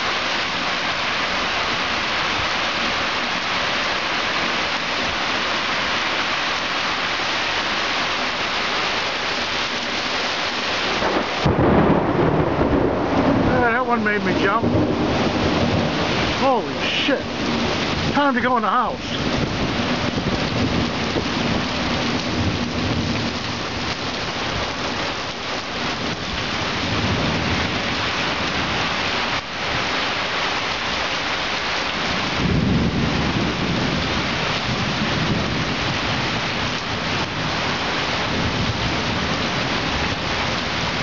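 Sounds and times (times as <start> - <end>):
heavy rain pouring: 0.0 - 41.0
thunder rumbling: 10.8 - 25.1, 25.7 - 29.4, 32.0 - 41.0.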